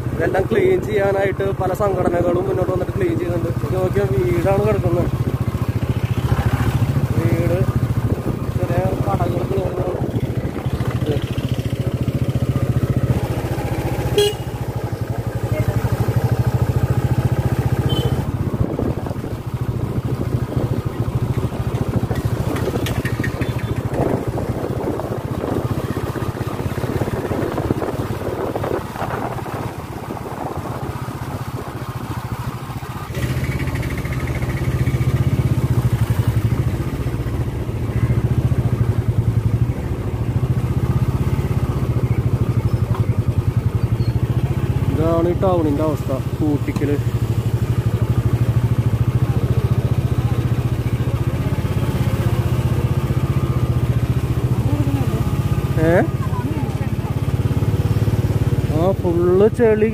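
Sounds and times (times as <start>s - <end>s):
vehicle engine running: 0.0s - 59.9s.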